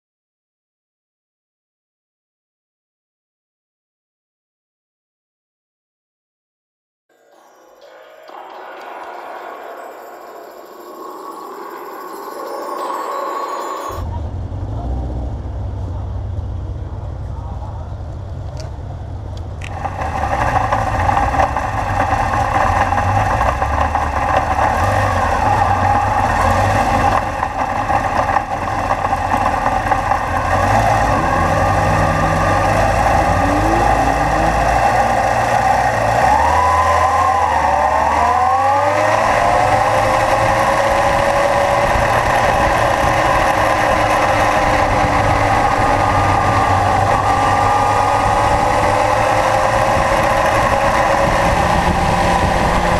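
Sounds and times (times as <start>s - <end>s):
motorcycle engine idling and revving: 14.0s - 52.9s
other motorcycles revving: 19.4s - 52.9s.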